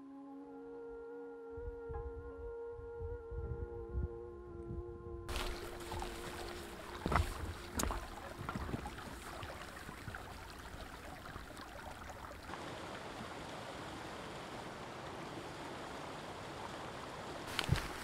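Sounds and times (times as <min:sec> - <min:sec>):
boot stepping in water: 0:05.3 - 0:12.4, 0:17.5 - 0:18.0
small waterfall rushing: 0:05.3 - 0:18.0
stream running over stones: 0:05.3 - 0:18.0.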